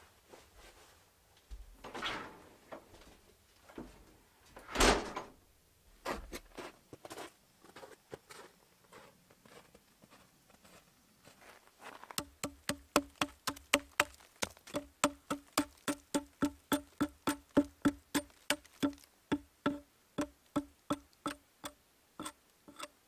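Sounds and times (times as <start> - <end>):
door swinging open: 1.5 - 5.4
footsteps crunching in snow: 6.0 - 12.2
quick even tapping: 14.7 - 22.9.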